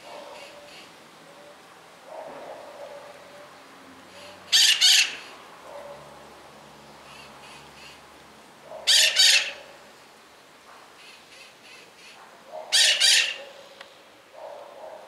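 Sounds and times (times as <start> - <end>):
parrot squawking: 4.2 - 5.3, 8.7 - 9.7, 12.6 - 13.5.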